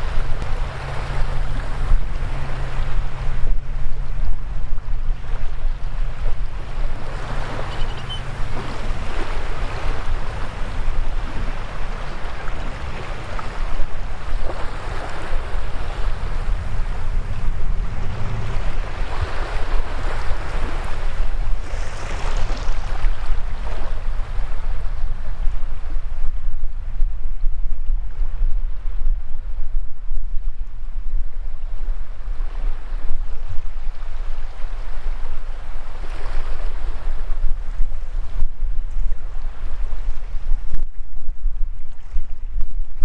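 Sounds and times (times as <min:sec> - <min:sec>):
waves washing over sand: 0:00.0 - 0:26.4
wind rumble on microphone: 0:00.0 - 0:43.0.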